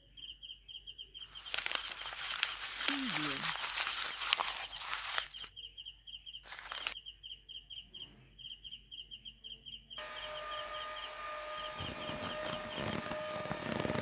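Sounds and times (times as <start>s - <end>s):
crickets chirping: 0.0s - 14.0s
small motor whining: 10.0s - 14.0s.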